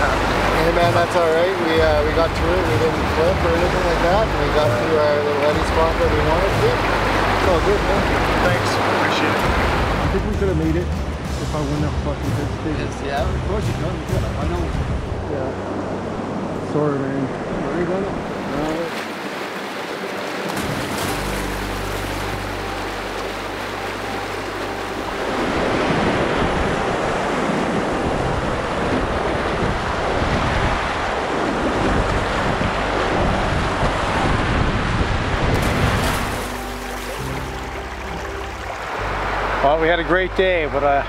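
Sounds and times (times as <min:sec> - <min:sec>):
whitewater rapids rushing: 0:00.0 - 0:10.4, 0:18.2 - 0:41.0
wind rumbling on microphone: 0:24.0 - 0:39.6.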